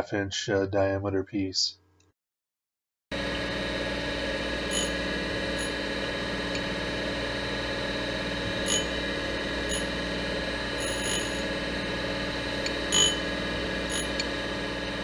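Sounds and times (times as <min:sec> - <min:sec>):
surface grinder humming: 0:03.2 - 0:15.0.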